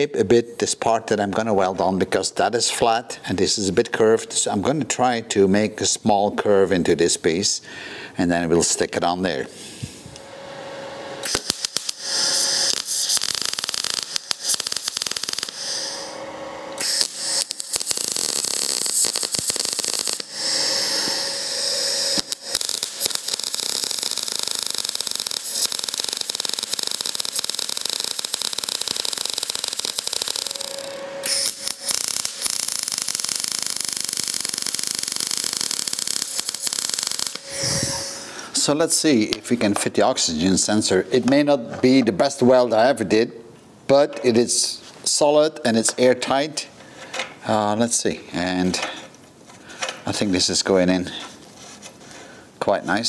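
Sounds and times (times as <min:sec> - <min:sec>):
welder arc crackling: 0:11.2 - 0:39.4.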